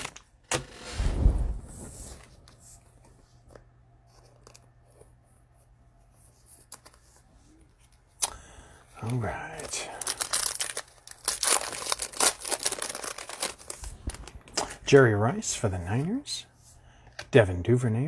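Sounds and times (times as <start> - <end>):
rustling scrape of card packs: 9.1 - 14.4.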